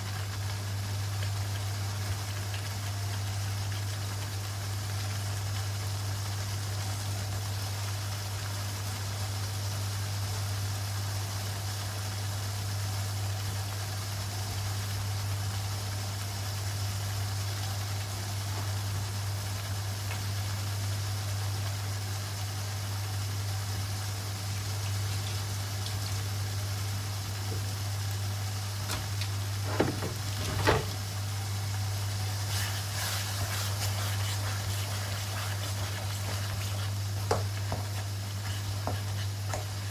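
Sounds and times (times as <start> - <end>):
kitchen appliance humming: 23.1 - 39.9
paste crackling in hot wok: 31.7 - 39.9
wooden spatula knocking on wok: 37.2 - 38.0, 38.8 - 39.8.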